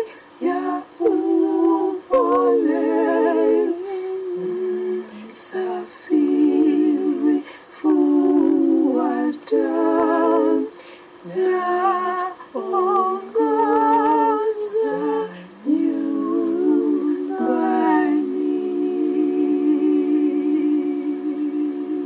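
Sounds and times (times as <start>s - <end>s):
a cappella voices singing hymn: 0.0s - 22.0s.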